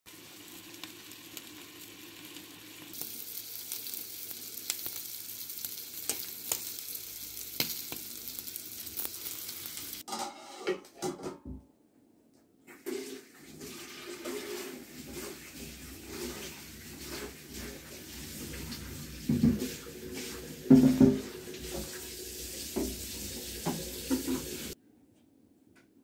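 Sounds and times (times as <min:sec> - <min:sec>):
meat sizzling in oil: 0:00.1 - 0:10.0, 0:14.5 - 0:24.8.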